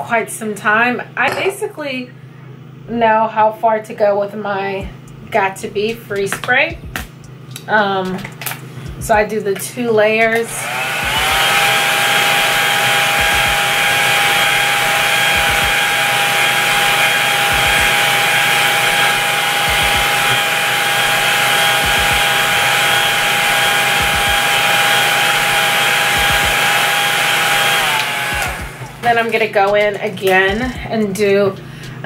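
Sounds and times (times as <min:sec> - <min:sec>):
hair dryer running: 0:07.8 - 0:30.9.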